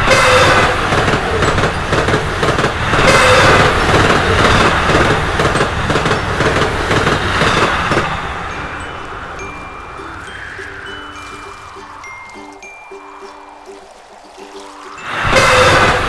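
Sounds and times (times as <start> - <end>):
diesel railcars passing: 0.0 - 16.0
wheels clicking over rails: 0.0 - 16.0.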